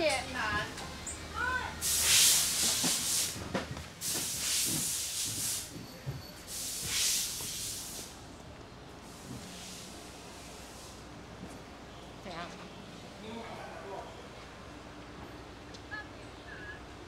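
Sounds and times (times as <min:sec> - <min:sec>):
bursts of hissing: 0:01.8 - 0:03.4, 0:04.0 - 0:05.7.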